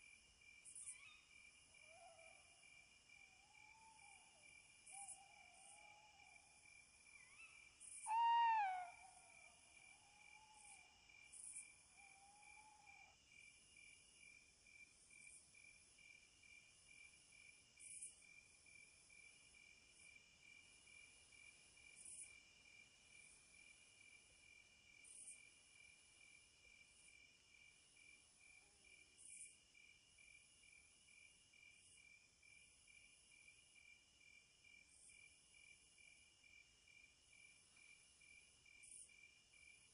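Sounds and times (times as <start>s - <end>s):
high insect hiss: 0.1s - 39.9s
crickets trilling: 7.2s - 13.2s.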